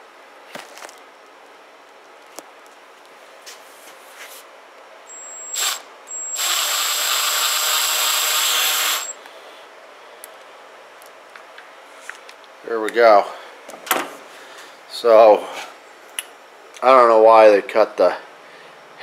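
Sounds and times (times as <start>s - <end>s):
cordless drill motor whine: 5.1s - 9.2s.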